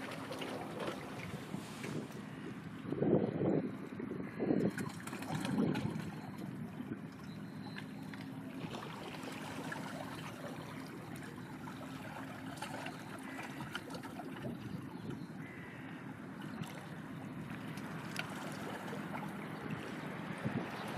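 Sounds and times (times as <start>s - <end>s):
wind buffeting microphone: 0.0s - 7.6s, 16.5s - 20.9s
sea water lapping: 0.0s - 20.9s.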